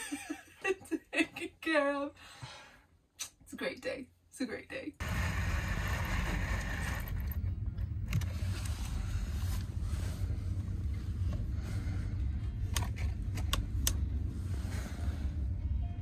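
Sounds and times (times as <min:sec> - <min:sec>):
cordless drill whirring: 0:05.0 - 0:08.2
steady low rumble: 0:05.0 - 0:16.0.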